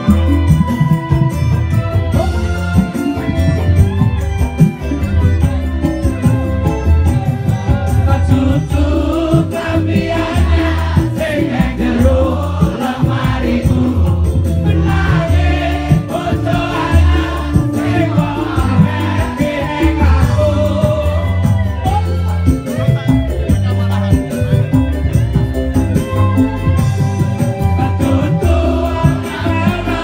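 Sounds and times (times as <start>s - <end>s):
crowd singing along: 0.0s - 4.0s, 4.7s - 23.1s, 23.7s - 30.0s
live band playing loudly: 0.0s - 30.0s
man singing into microphone: 7.3s - 22.9s, 27.6s - 30.0s.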